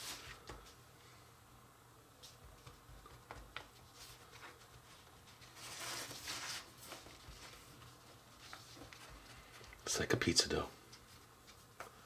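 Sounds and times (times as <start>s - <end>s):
dough rustling scrape: 3.8s - 9.5s.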